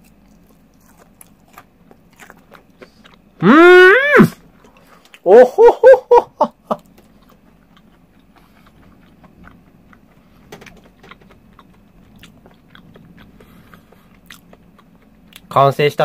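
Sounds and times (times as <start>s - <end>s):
chewing crunchy food: 0.0s - 3.4s, 4.4s - 5.3s, 6.8s - 15.7s
person laughing: 3.4s - 4.4s, 5.2s - 6.9s.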